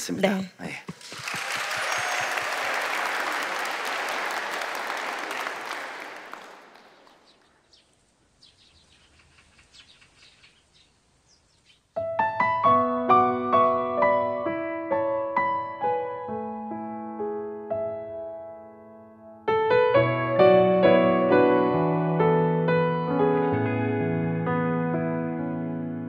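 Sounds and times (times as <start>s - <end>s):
audience applauding: 0.9s - 7.5s
faint bird chirps: 6.8s - 12.0s
keyboard playing slow chords: 12.0s - 26.0s.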